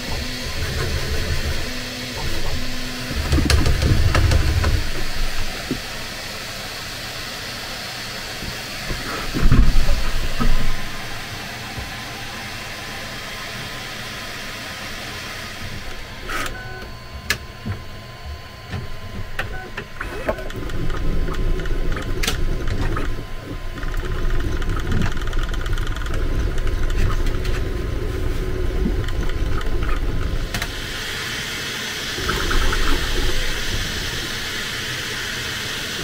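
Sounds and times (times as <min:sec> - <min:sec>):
printer motors moving: 0:00.0 - 0:06.0, 0:08.4 - 0:31.1.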